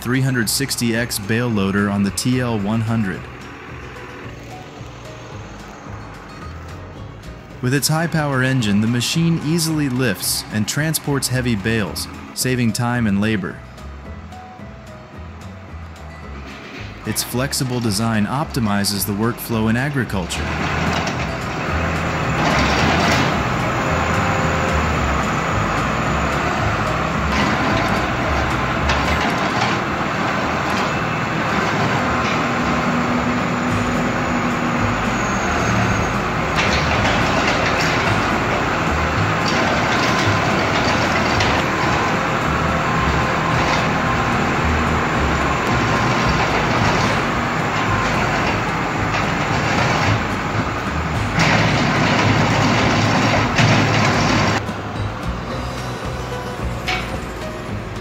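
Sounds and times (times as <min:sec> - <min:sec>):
tractor diesel engine running: 0:00.0 - 0:58.0
machinery knocks: 0:17.6 - 0:24.2, 0:26.2 - 0:54.7.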